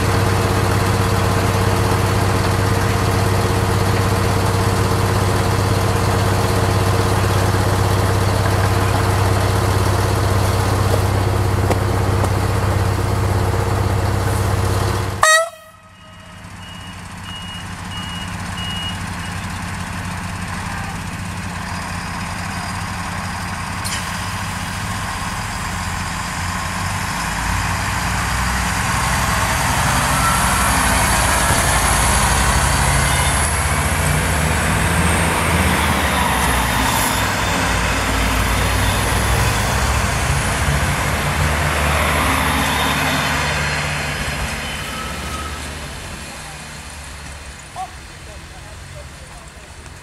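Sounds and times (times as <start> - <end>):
diesel train engines and rolling: 0.0 - 50.0
train horn: 15.2 - 16.4.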